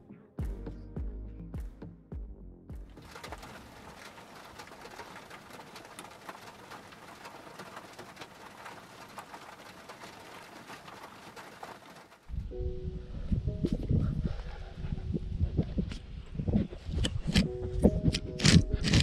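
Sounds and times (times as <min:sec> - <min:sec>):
steady rain falling: 0:02.9 - 0:12.5.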